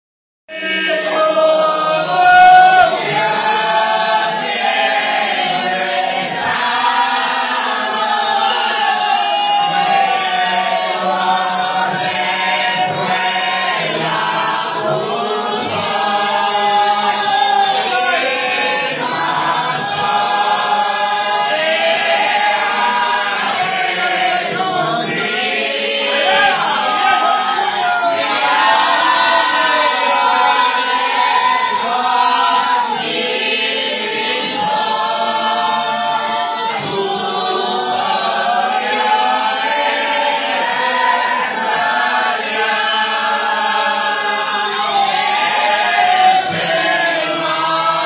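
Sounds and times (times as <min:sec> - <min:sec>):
congregation singing together: 0:00.5 - 0:48.0.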